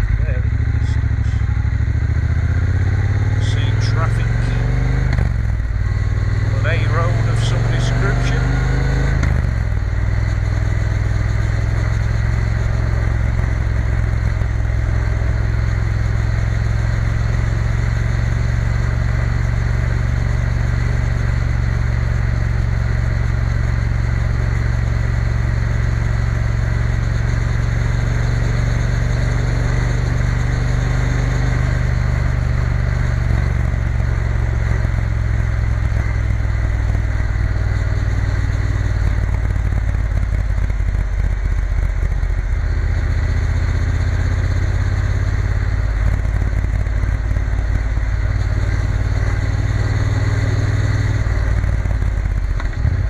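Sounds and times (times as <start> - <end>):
motorcycle engine cruising: 0.0 - 53.0.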